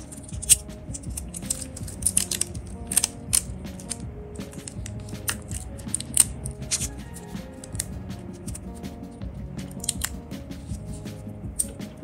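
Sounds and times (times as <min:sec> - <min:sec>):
metal clasp clicking: 0:00.0 - 0:06.9, 0:09.7 - 0:11.0
background music: 0:00.0 - 0:12.0.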